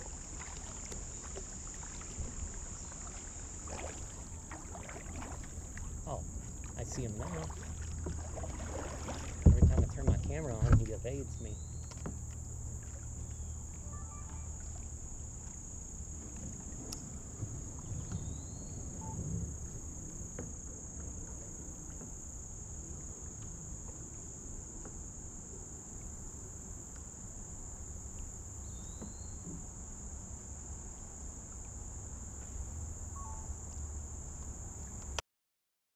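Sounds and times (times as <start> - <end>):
insects droning: 0.0 - 35.2
bird chirps: 11.4 - 12.0, 18.0 - 19.2, 28.6 - 29.5, 33.2 - 33.6.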